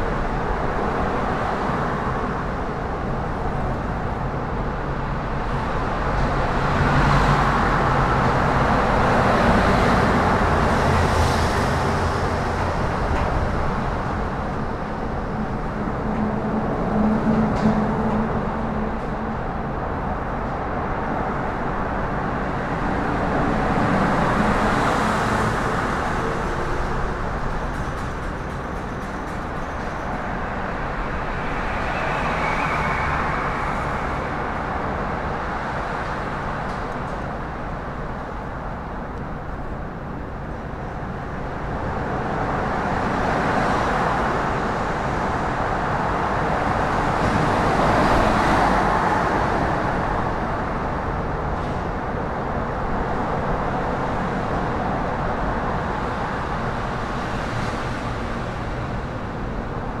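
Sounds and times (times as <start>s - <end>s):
passing road traffic: 0.0s - 60.0s.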